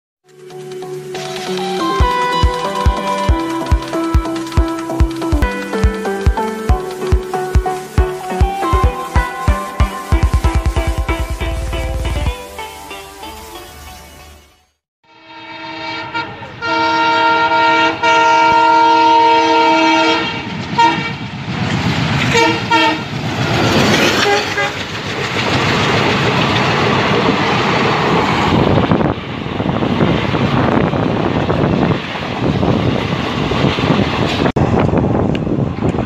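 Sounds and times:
locomotive horn blasts: 15.1s - 21.2s, 22.3s - 23.1s, 24.2s - 24.8s.

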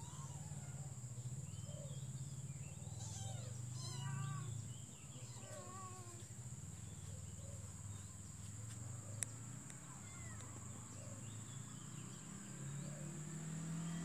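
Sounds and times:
cat meowing: 3.0s - 4.5s.

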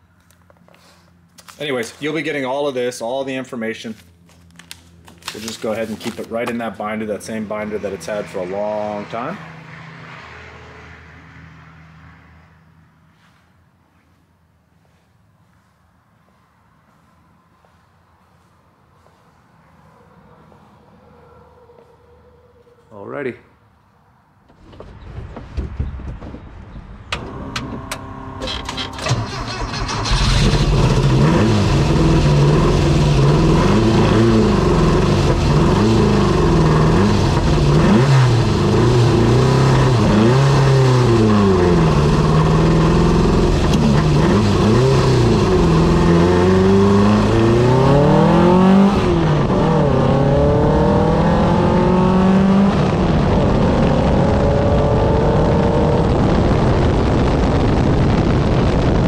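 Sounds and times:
race car engine revving: 6.9s - 12.4s, 27.0s - 59.0s
race car engine cranking and starting: 24.5s - 51.5s.

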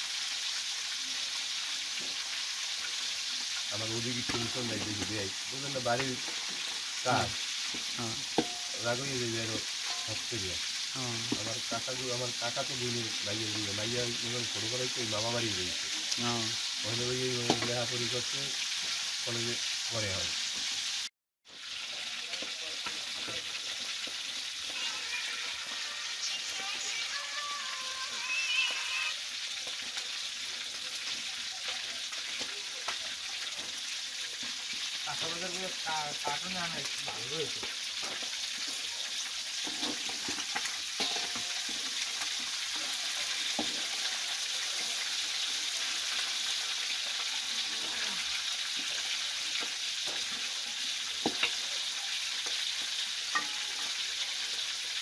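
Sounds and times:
food sizzling in oil: 0.0s - 55.0s
metal spatula stirring in pot: 6.0s - 8.9s, 9.6s - 11.8s, 36.9s - 54.4s.

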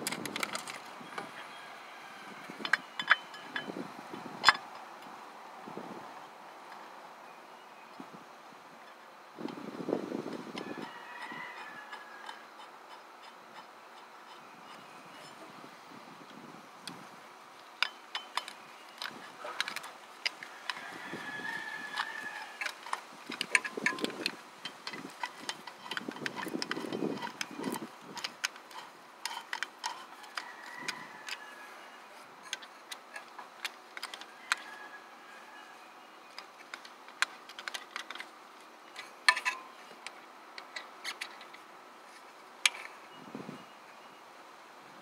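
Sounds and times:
metallic clicks of hand tools: 2.6s - 3.7s, 17.8s - 20.9s, 21.9s - 31.4s, 36.3s - 38.3s, 38.9s - 41.6s, 42.6s - 43.0s.

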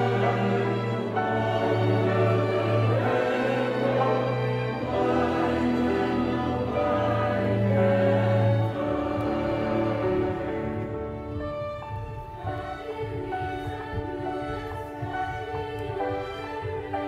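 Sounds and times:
orchestra and choir performing: 0.0s - 17.0s.

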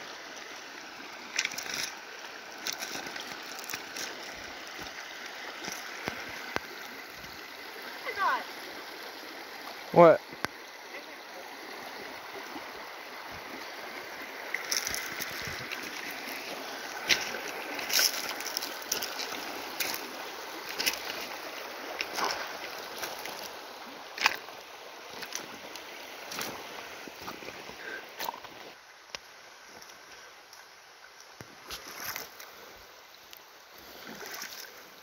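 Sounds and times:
river water running: 0.0s - 35.0s
splashes and knocks in water: 1.3s - 1.9s, 17.0s - 20.0s, 22.0s - 23.6s, 24.2s - 24.5s, 34.0s - 34.8s.

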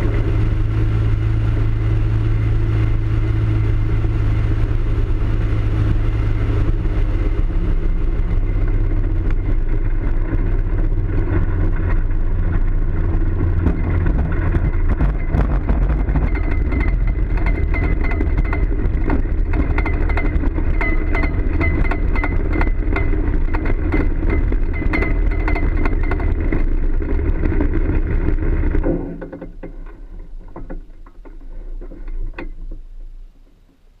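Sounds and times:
propeller spinning down: 0.0s - 31.2s
light aircraft engine and propeller: 0.0s - 32.8s
small knocks: 13.5s - 33.8s.

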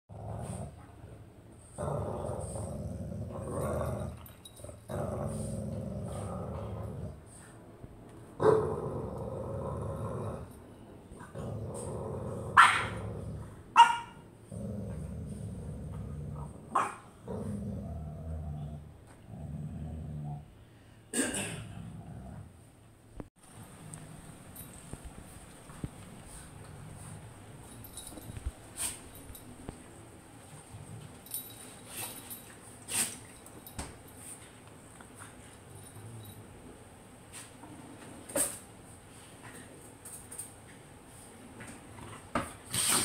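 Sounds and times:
dogs growling: 0.1s - 1.0s, 1.6s - 7.5s, 8.4s - 13.7s, 14.4s - 20.5s, 21.6s - 22.6s.

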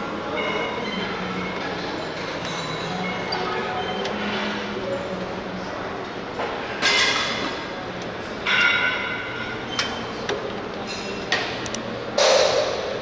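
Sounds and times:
metal gym equipment clanking: 8.4s - 11.6s.

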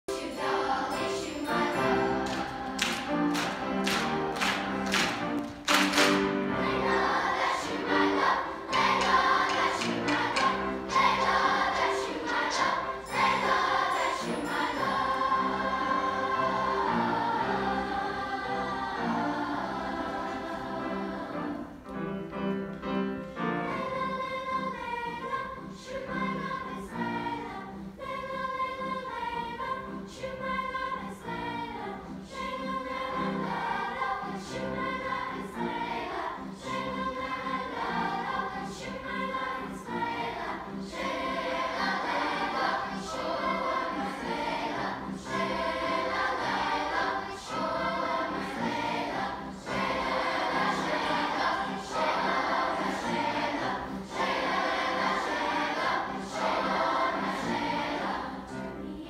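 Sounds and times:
children's choir singing: 0.0s - 59.0s
sharp percussive hits: 8.7s - 11.3s.

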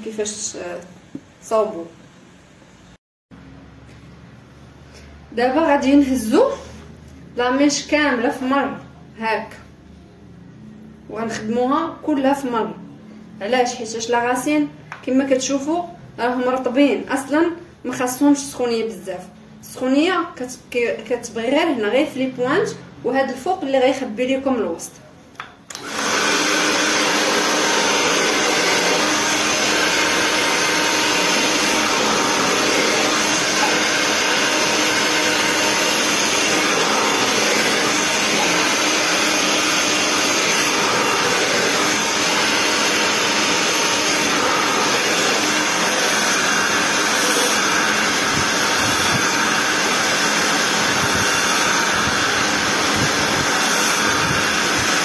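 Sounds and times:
hair dryer blowing: 25.7s - 55.0s.

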